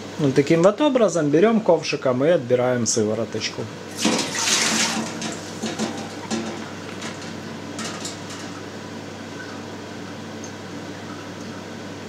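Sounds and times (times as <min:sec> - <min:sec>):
liquid pouring splash: 0:03.9 - 0:06.0.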